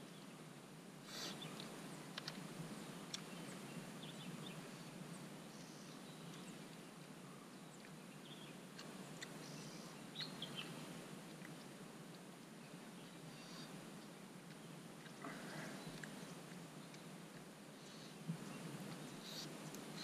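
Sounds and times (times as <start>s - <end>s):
bird chirps: 9.4s - 10.8s.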